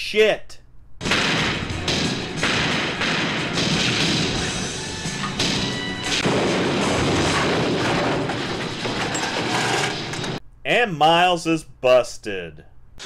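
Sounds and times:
action film music: 1.0 - 8.9
car crash impacts: 1.0 - 10.4.

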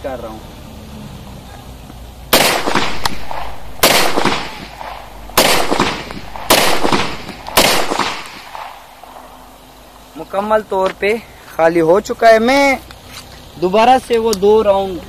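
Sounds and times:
pistol shots: 2.3 - 9.5.

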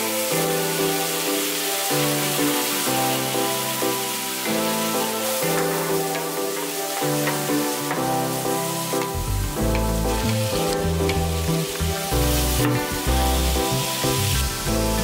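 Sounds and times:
food sizzling in frying pan: 0.0 - 15.0
wooden spatula stirring: 4.5 - 13.7.

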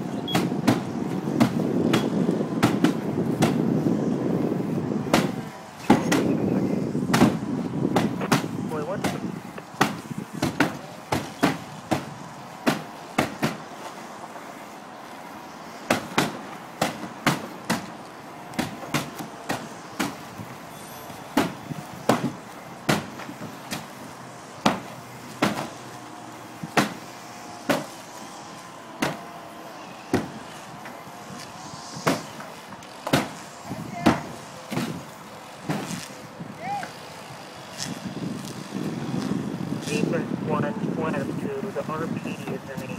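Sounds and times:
axe chopping into plywood: 5.1 - 5.3, 22.9 - 23.9, 24.6 - 25.7, 26.7 - 27.0, 33.0 - 33.4.

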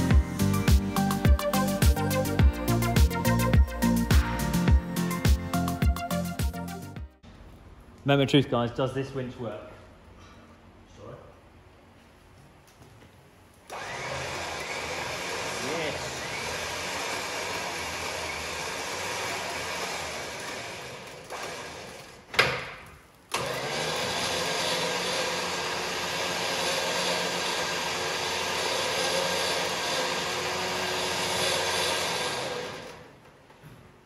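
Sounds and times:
electric winch motor whine: 13.7 - 22.4, 23.3 - 33.2.

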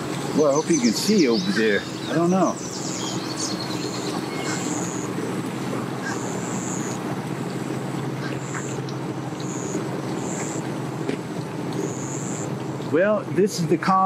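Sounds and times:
low engine hum: 0.0 - 14.0
high-pitched buzzing chirps: 0.4 - 5.2, 6.0 - 7.1, 8.2 - 10.7, 11.8 - 12.5.

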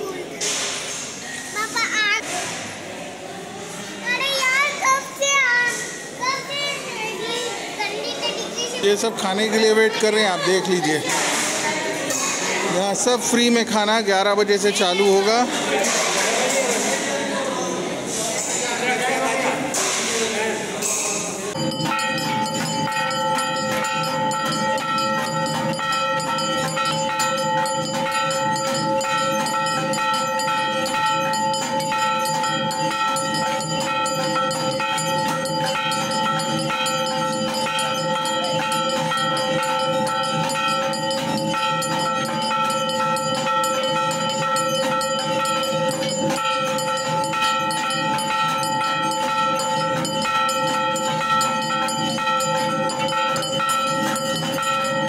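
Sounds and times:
metal bells clanging: 20.9 - 55.0.

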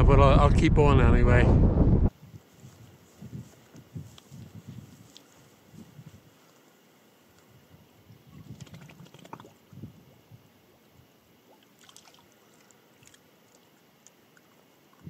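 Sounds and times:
faint water splashing: 5.0 - 10.3, 11.0 - 15.0.

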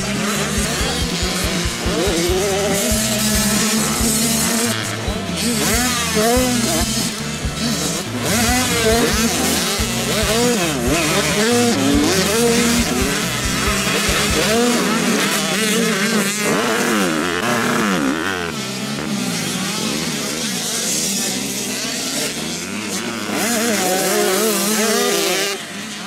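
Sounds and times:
motocross bikes revving: 0.0 - 26.0.

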